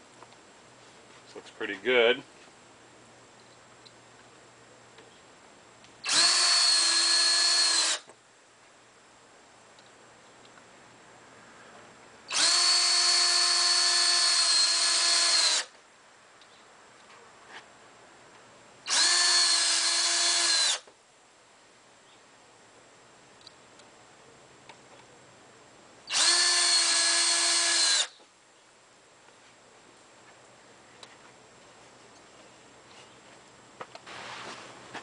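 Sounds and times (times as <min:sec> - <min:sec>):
cordless drill whining: 0:06.0 - 0:08.1, 0:12.3 - 0:15.8, 0:18.9 - 0:20.9, 0:26.1 - 0:28.2.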